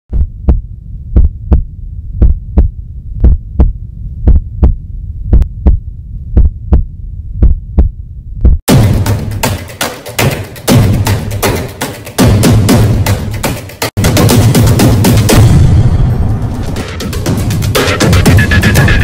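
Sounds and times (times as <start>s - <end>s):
heartbeat thumps: 0.1s - 9.4s
steady low hum: 0.2s - 8.6s
drum-led music: 7.4s - 19.0s.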